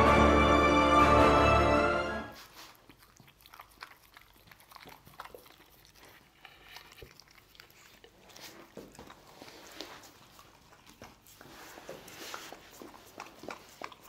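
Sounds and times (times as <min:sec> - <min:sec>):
dog licking and chewing: 0:02.3 - 0:14.0.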